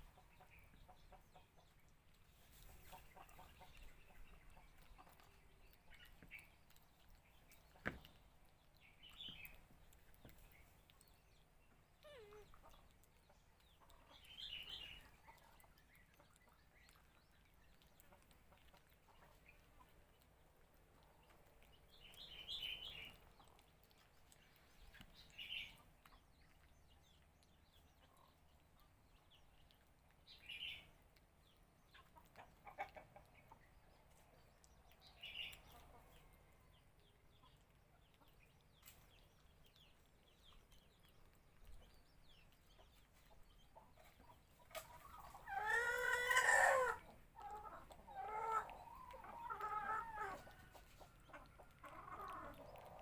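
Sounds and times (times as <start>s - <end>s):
faint high-pitched animal chirps: 12.0s - 12.8s.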